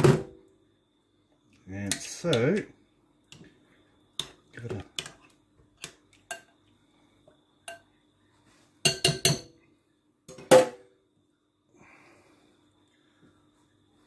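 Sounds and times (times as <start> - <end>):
utensil clinking against glass bowl: 8.8 - 9.5.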